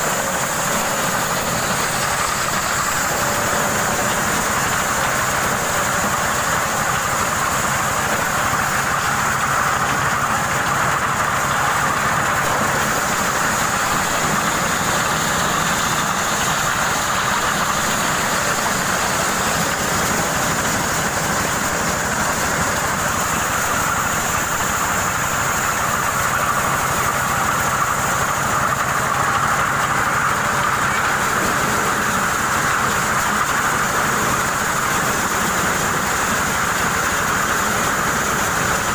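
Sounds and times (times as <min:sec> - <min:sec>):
corn sheller shelling corn: 0:00.0 - 0:38.9
engine hum: 0:00.0 - 0:38.9.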